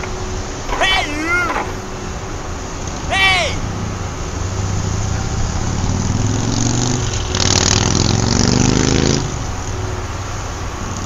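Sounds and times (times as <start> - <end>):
engine revving: 4.6 - 9.7.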